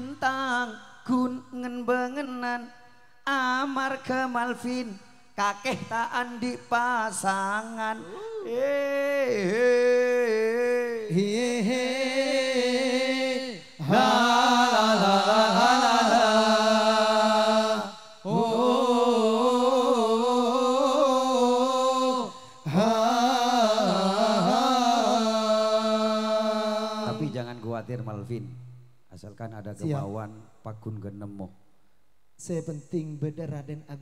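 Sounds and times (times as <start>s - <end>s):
man singing through microphone: 0.0s - 25.4s.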